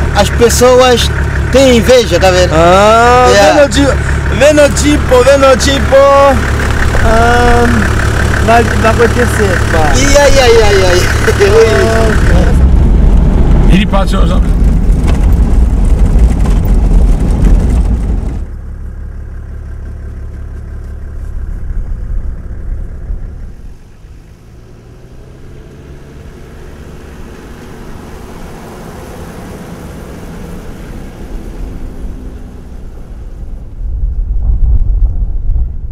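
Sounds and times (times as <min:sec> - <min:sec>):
off-road vehicle engine passing: 0:00.0 - 0:35.6
off-road vehicle drive noise on board: 0:00.0 - 0:35.9.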